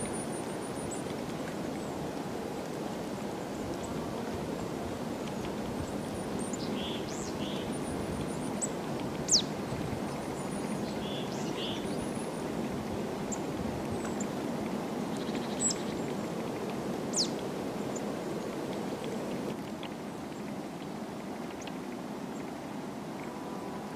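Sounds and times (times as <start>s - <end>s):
songbirds chirping: 6.4s - 7.8s, 10.1s - 12.1s.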